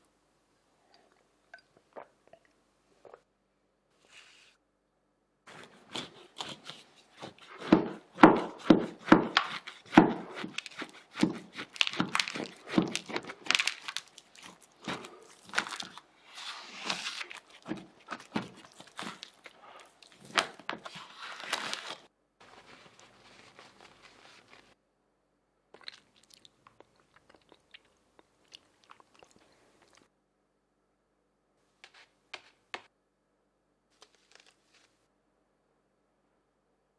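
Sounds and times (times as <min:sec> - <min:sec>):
crackling and crinkling cardboard: 0:09.3 - 0:24.8, 0:34.0 - 0:35.0.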